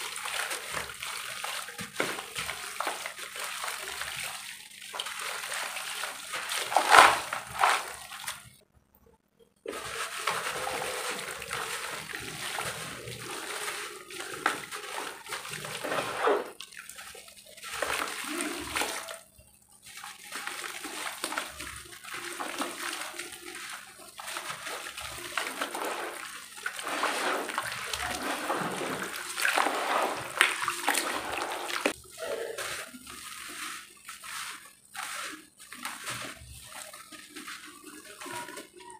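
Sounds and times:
water splashing and sloshing: 0.0s - 8.6s, 9.6s - 38.9s
powdery dirt sifting: 5.0s - 8.2s, 9.7s - 16.6s, 20.2s - 38.9s.

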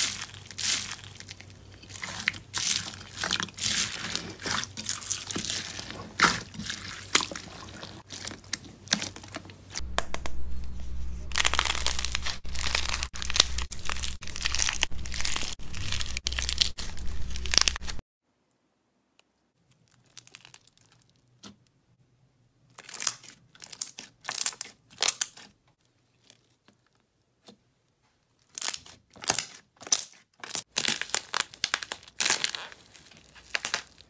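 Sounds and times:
hands squishing crackling slime: 0.0s - 10.2s, 11.3s - 18.0s, 28.4s - 34.0s
steady low hum: 9.6s - 14.2s.

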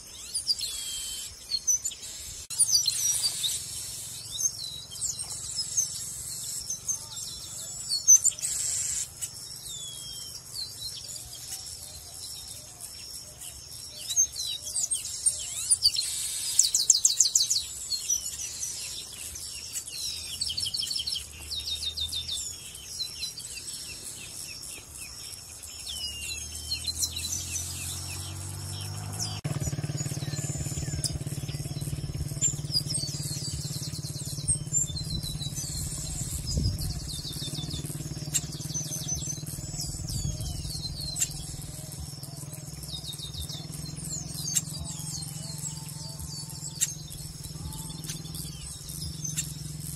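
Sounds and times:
bird trilling: 0.0s - 12.6s, 13.3s - 49.9s
birds chirping and whistling: 0.0s - 49.9s
low engine hum: 25.4s - 49.9s.

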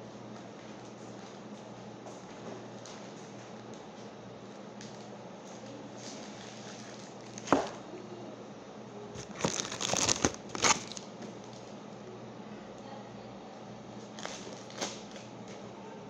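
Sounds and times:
plastic bag crinkling: 9.2s - 11.1s.

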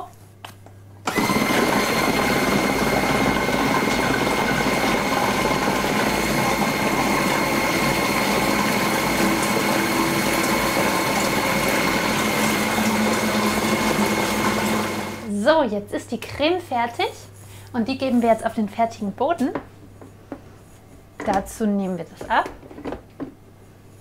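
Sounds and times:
food processor whining: 1.1s - 15.3s.

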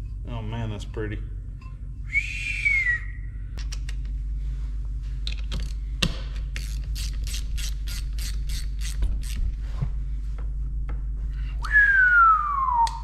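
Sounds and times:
hand ratchet clicking: 5.3s - 9.5s.

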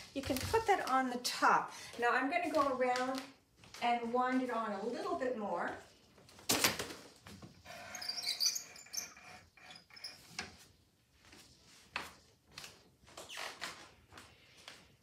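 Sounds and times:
loom beam squeak: 7.6s - 10.4s.

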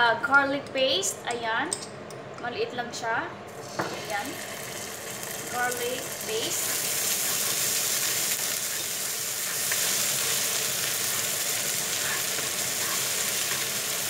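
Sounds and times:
garlic sizzling in frying pan: 3.5s - 14.0s.

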